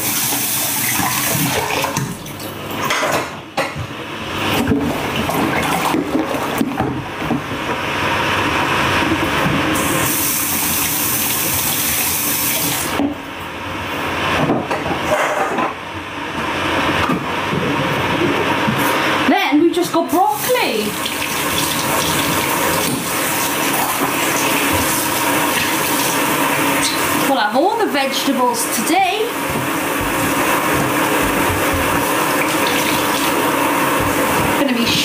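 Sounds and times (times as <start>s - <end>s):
water rushing: 20.2s - 27.3s, 31.9s - 34.9s.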